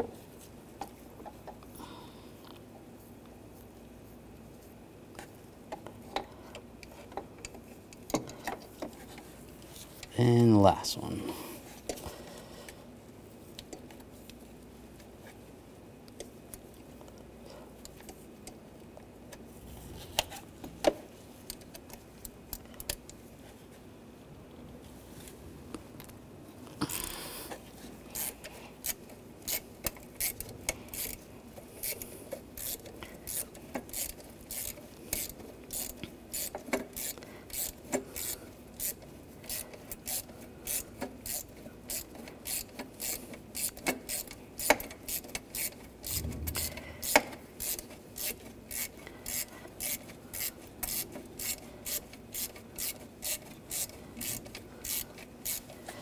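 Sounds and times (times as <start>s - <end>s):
ratchet wrench clicking: 32.6s - 55.6s
sharp metal knocks: 46.1s - 47.4s.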